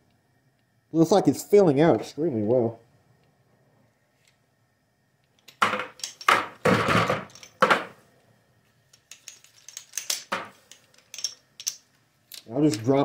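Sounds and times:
metal bullet mold clacking: 5.3s - 6.6s, 7.2s - 7.7s, 9.0s - 12.9s.

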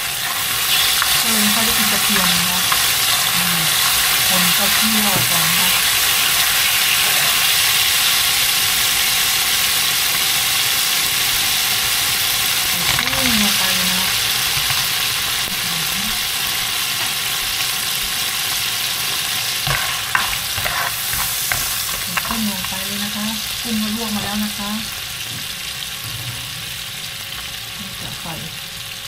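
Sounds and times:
shrimp sizzling in hot oil: 0.0s - 29.0s.

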